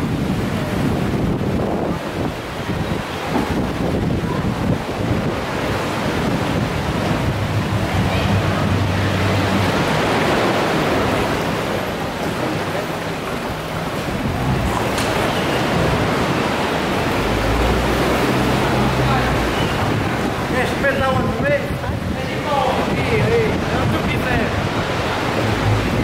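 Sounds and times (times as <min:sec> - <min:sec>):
sea surf: 0:00.0 - 0:26.0
wind: 0:00.0 - 0:26.0.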